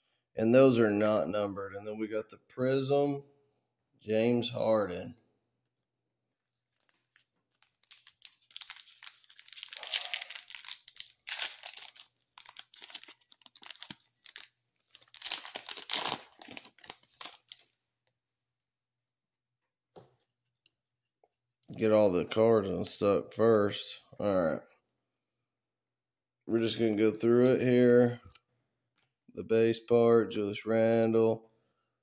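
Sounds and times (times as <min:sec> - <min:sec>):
plastic foil wrapper tearing and crinkling: 0:06.5 - 0:17.7.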